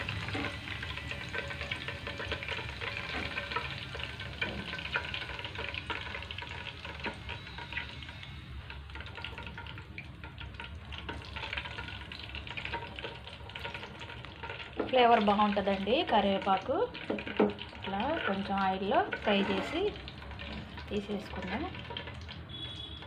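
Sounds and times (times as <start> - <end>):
leaves frying in oil: 0.0 - 23.0
metal spoon scraping: 19.0 - 20.6.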